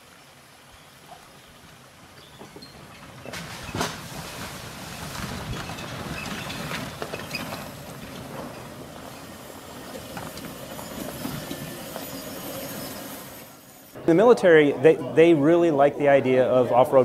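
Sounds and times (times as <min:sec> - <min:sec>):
tyres rumbling over dirt trail: 0:01.0 - 0:13.6
knocks and clatters: 0:02.1 - 0:09.2.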